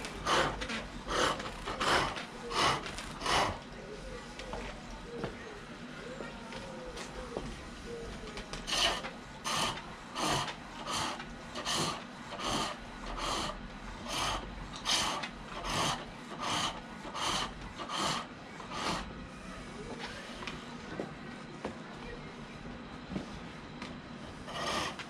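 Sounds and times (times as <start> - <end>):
rhythmic rasping wood cutting: 0.0 - 3.7, 8.7 - 19.1, 24.4 - 25.0.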